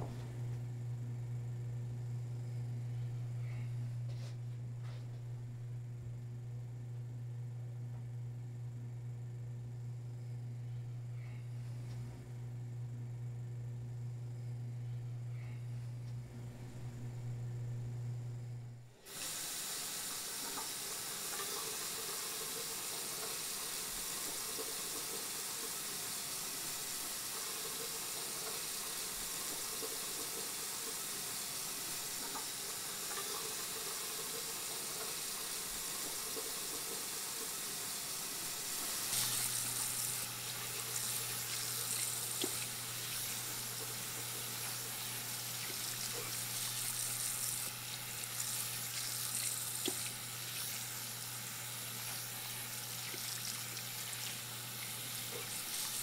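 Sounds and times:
low steady hum: 0:00.0 - 0:19.1
faucet running water: 0:18.9 - 0:56.0.

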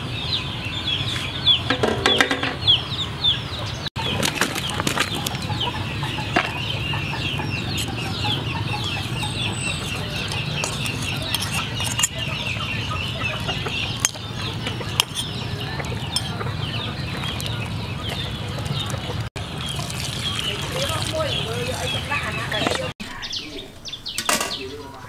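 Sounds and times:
chickens clucking and cheeping: 0:00.0 - 0:25.0
utensils clicking on pot: 0:09.2 - 0:12.3.

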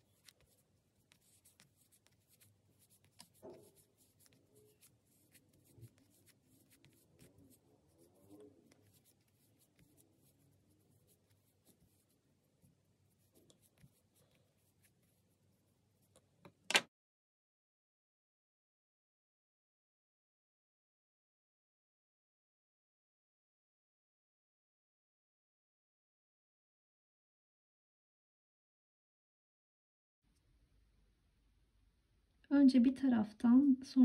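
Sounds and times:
stuffing rustling and scratching: 0:00.0 - 0:16.2.

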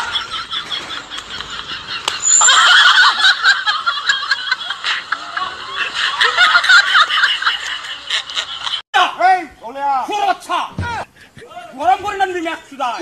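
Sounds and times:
men laughing: 0:00.0 - 0:08.8.

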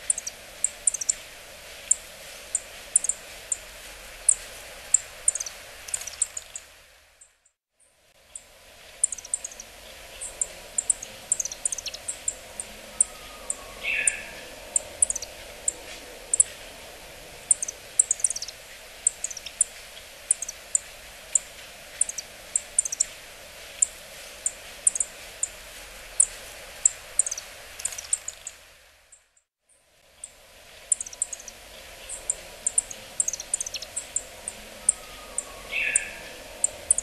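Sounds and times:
steady background noise: 0:00.0 - 0:07.3, 0:07.9 - 0:37.0
bird giving short high calls: 0:10.2 - 0:16.5, 0:32.0 - 0:37.0.

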